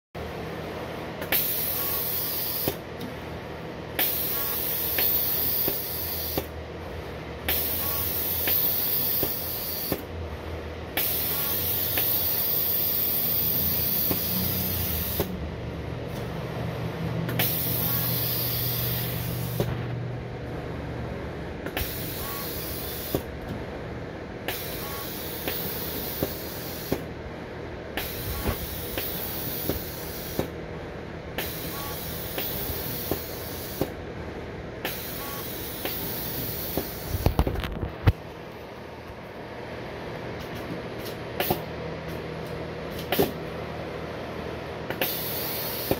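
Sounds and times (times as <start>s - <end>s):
pneumatic air hiss: 1.2s - 2.8s, 4.0s - 6.5s, 7.5s - 10.1s, 11.0s - 15.4s, 17.3s - 19.8s, 21.6s - 23.3s, 24.5s - 27.1s, 28.0s - 30.6s, 31.4s - 34.0s, 34.8s - 37.5s, 41.4s - 41.7s, 42.9s - 43.4s, 44.9s - 45.9s
low motor hum: 13.1s - 25.0s.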